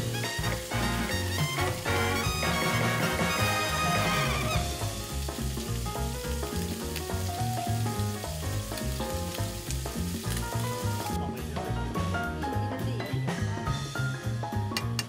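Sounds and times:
meat sizzling in hot oil: 0:00.0 - 0:11.2
background music with walking bass: 0:00.0 - 0:15.0.

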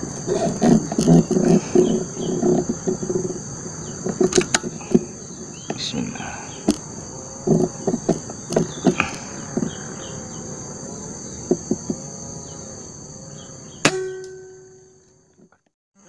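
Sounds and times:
insects buzzing: 0:00.0 - 0:16.0
knocks and clicks: 0:04.0 - 0:05.8
air rifle shot with metallic ring: 0:13.8 - 0:14.8.

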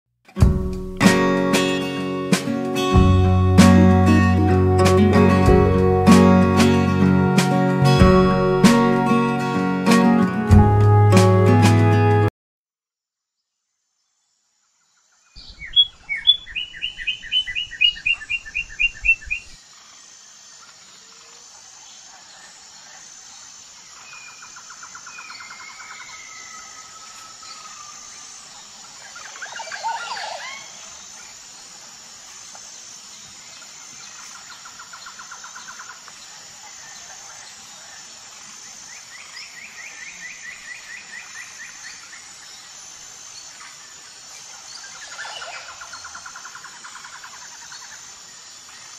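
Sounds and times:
faint high hiss: 0:15.2 - 0:48.9
birds chirping and trilling: 0:15.4 - 0:19.6, 0:24.0 - 0:31.0.

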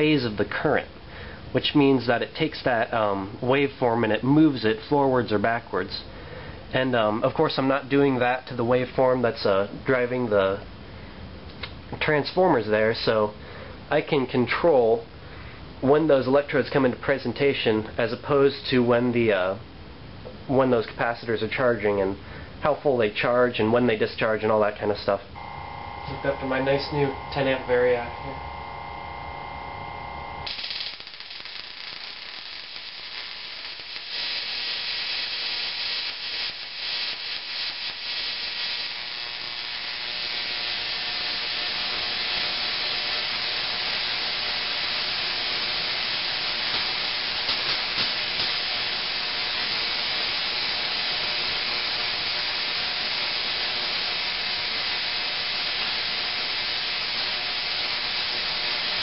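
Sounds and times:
tesla coil sparks hissing: 0:25.4 - 0:59.0.

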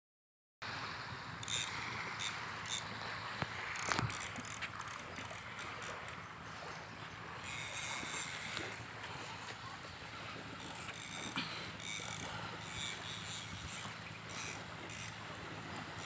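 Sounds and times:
fishing reel ticking and winding: 0:01.4 - 0:06.7, 0:07.3 - 0:08.8, 0:10.5 - 0:15.2.

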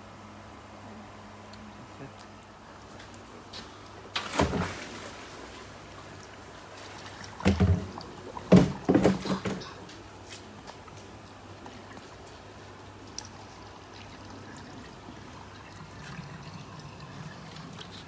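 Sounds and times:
water splashing in plastic tub: 0:04.1 - 0:09.8.

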